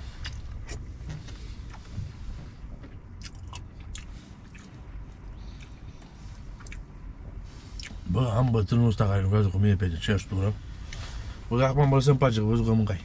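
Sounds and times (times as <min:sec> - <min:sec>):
man chewing: 0:00.0 - 0:02.2, 0:02.8 - 0:08.1
low steady hum: 0:00.0 - 0:13.0.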